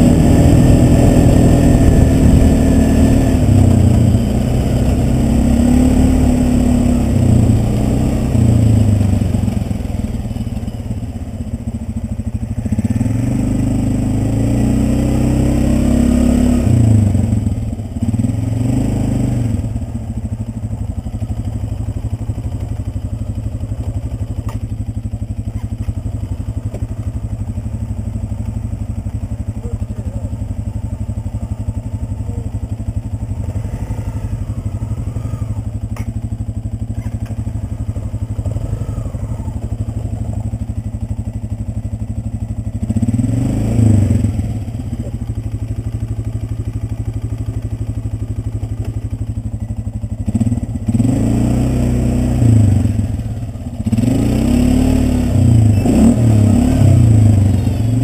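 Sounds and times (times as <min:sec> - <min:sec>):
engine revving: 0:00.0 - 0:11.0, 0:12.5 - 0:20.2, 0:29.6 - 0:42.0, 0:42.7 - 0:45.3, 0:50.2 - 0:58.0.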